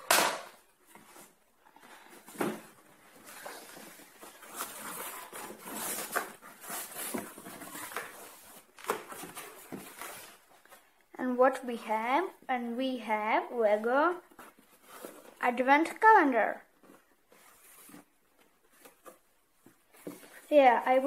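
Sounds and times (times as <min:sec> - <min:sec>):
cardboard flaps scraping and rustling: 0:00.8 - 0:10.8.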